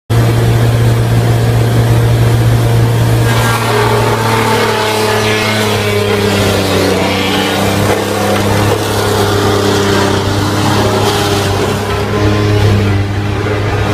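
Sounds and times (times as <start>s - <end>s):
sawdust crusher humming: 0.1s - 13.9s
blades chipping wood: 3.2s - 12.4s.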